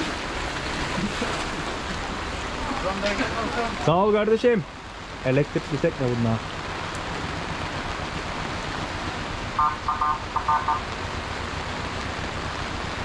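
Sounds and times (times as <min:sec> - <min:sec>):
rain and wind: 0:00.0 - 0:13.0
short high beeps: 0:09.6 - 0:10.8.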